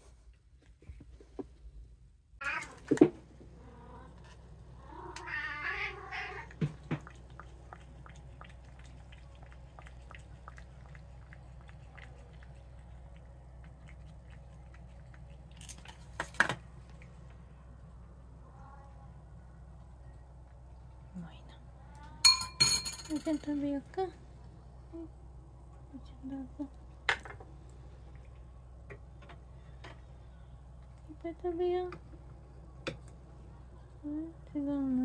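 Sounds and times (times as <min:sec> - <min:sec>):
cat meowing: 0:02.4 - 0:02.8, 0:04.8 - 0:06.5
cat lapping from plastic cup: 0:06.5 - 0:17.0.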